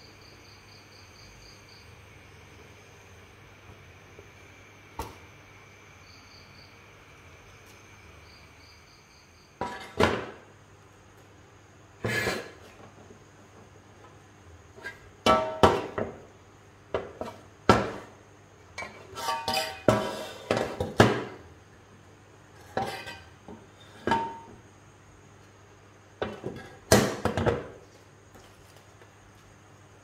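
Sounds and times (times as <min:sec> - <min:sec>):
metal scraping: 0:19.0 - 0:20.5, 0:22.6 - 0:23.4.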